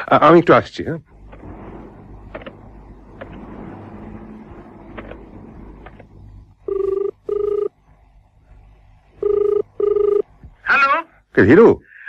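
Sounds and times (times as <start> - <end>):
telephone ringback tone: 6.6 - 7.7, 9.2 - 10.3.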